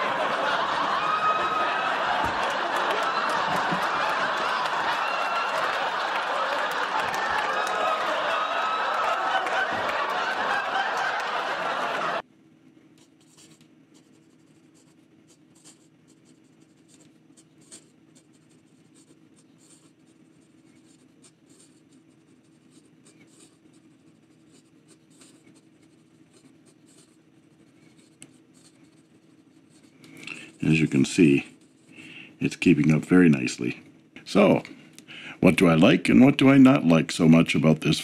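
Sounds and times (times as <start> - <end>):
fountain pen scratching on paper: 13.0 - 31.9.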